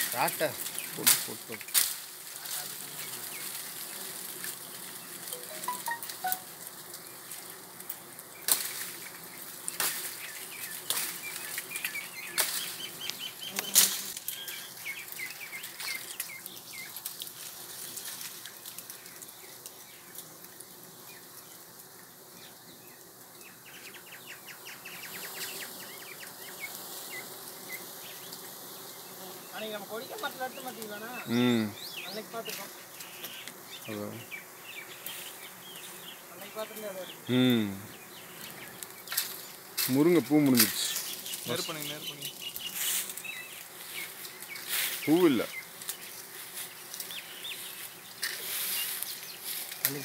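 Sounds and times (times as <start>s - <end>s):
bees buzzing: 0.0s - 50.0s.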